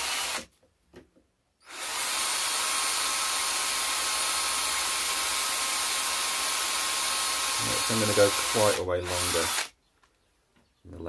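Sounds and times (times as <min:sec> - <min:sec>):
cordless drill boring into wood: 0:00.0 - 0:00.5, 0:01.6 - 0:09.7.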